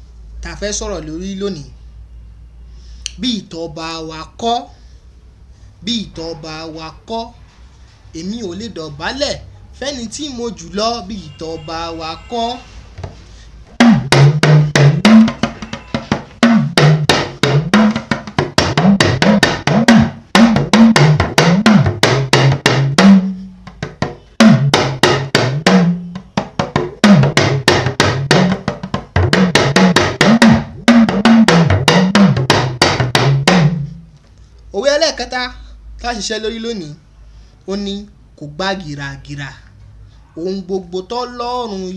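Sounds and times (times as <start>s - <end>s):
talking drum pitch-bending strokes: 13.7s - 34.0s.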